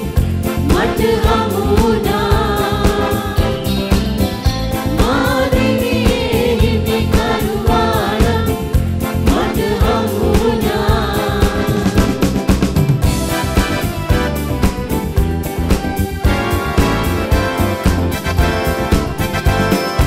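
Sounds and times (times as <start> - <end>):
bass: 0.0 - 20.0
electronic keyboards: 0.0 - 20.0
steady drum beat: 0.0 - 20.0
people singing: 0.5 - 4.1, 4.8 - 12.5.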